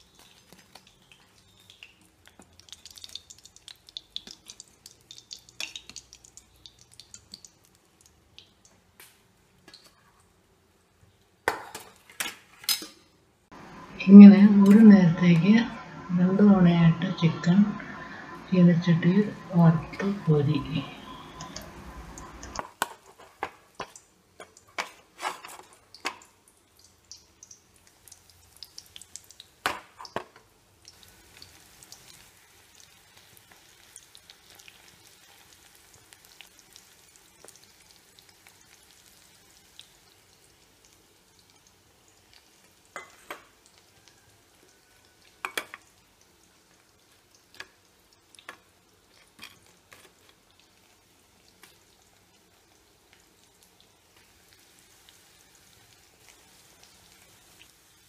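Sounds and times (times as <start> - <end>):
food sizzling in hot oil: 0.0 - 8.7, 15.5 - 58.0.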